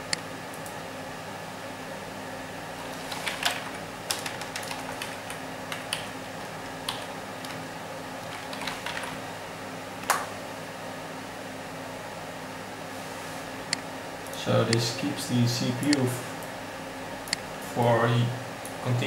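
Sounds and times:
steady low hum: 0.0s - 19.0s
keyboard typing: 2.9s - 9.2s.

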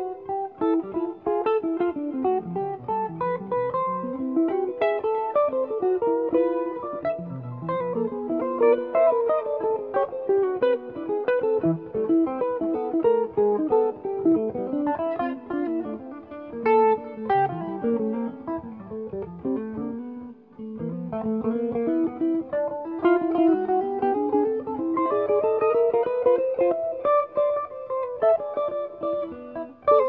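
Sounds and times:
jazz guitar duet: 0.0s - 30.0s.

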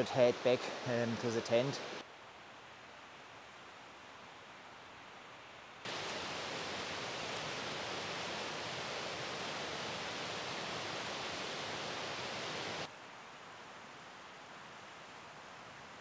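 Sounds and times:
quiet steady hiss: 0.0s - 16.0s
river rushing over rapids: 5.8s - 16.0s.

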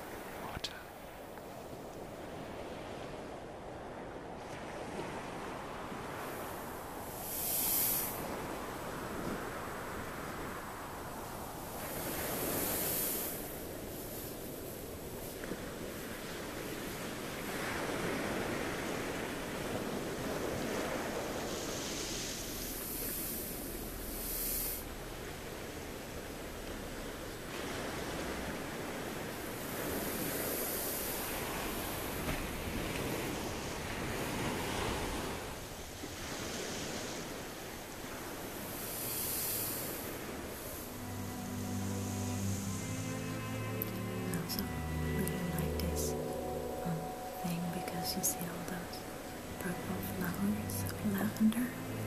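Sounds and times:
sea waves washing ashore: 0.0s - 52.0s
low ambient synth chord: 40.1s - 52.0s.

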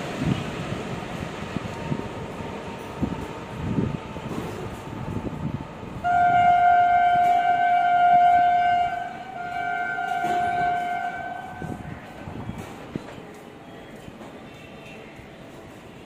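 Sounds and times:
locomotive horn blasts: 6.0s - 11.8s.

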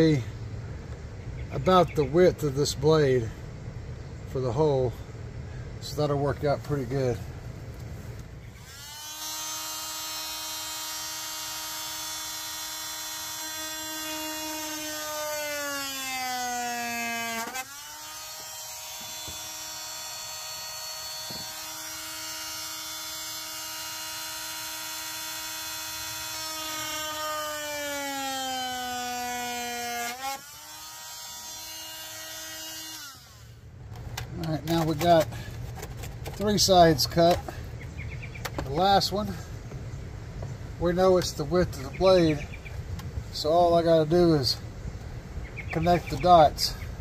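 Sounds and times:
oscillating multi-tool cutting plastic: 8.5s - 33.6s.

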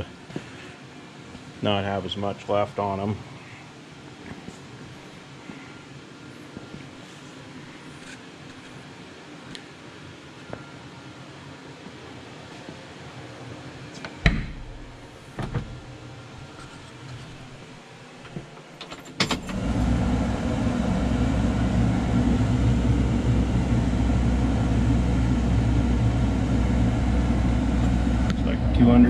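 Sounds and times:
sharp knocks and clunks: 15.4s - 15.8s
diesel tractor engine starting and idling: 19.2s - 29.0s.

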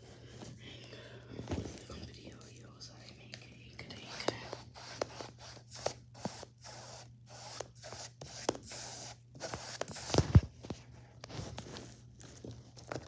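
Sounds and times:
paintbrush scrubbing canvas: 4.0s - 10.2s.

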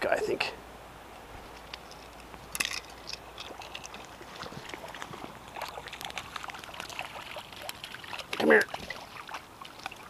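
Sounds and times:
fish splashing in water: 3.4s - 10.0s.

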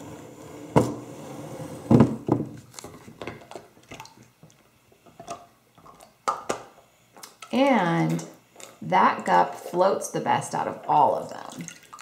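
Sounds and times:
small water splashes: 11.4s - 12.0s.

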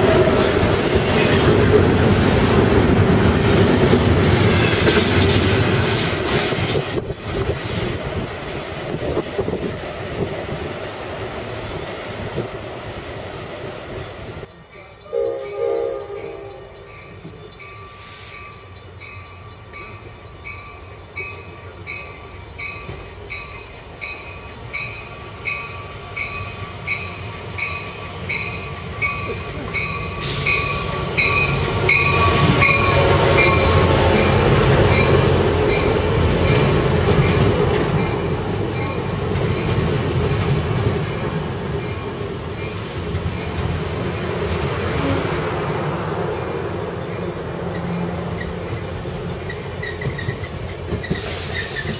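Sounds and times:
train rumble and wheel noise: 0.0s - 51.9s
train bell ringing: 14.5s - 39.8s.

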